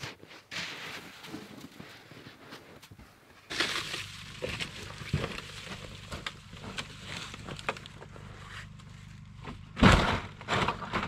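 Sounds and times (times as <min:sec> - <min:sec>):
shovel scraping snow: 0:00.0 - 0:02.8, 0:03.5 - 0:07.5.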